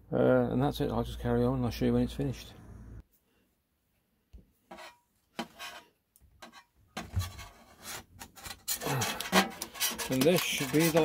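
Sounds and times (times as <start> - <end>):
sheet metal scrapes and knocks: 4.7 - 11.0.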